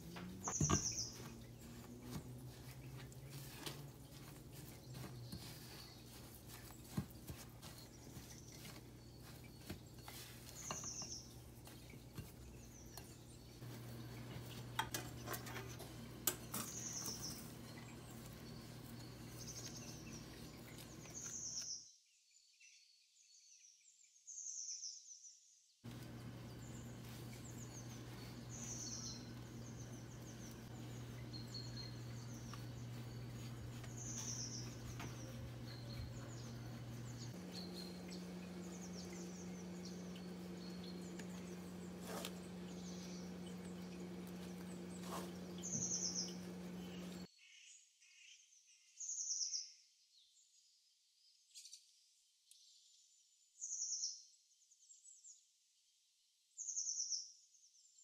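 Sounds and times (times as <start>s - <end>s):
small birds chirping: 0.0s - 25.2s, 25.9s - 55.4s
steady low hum: 25.9s - 47.3s.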